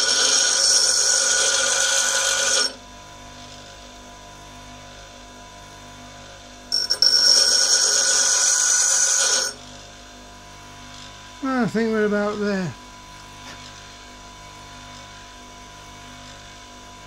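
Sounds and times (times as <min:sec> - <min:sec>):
grinder wheel grinding steel: 0:00.0 - 0:02.8, 0:06.7 - 0:09.8
grinder motor running: 0:00.0 - 0:03.8, 0:06.7 - 0:10.1.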